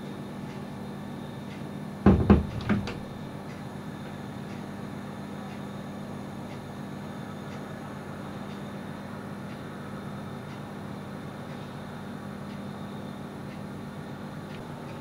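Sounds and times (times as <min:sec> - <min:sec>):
low hum and hiss: 0:00.0 - 0:15.0
quick knocks: 0:02.1 - 0:03.1.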